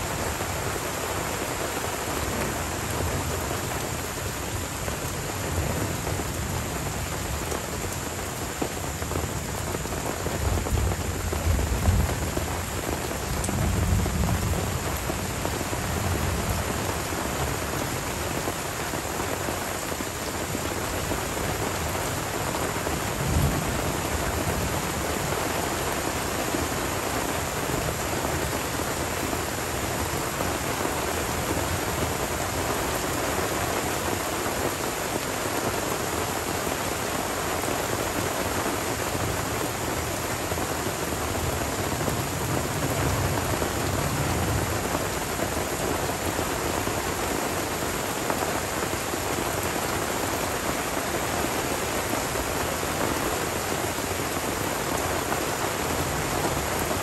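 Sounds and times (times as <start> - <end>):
rain on foliage: 0.0 - 57.0
low rolling thunder: 9.2 - 16.9.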